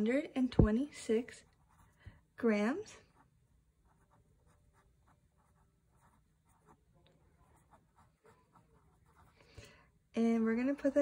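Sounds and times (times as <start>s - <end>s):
pen scratching on paper: 1.4s - 2.0s, 3.0s - 9.4s.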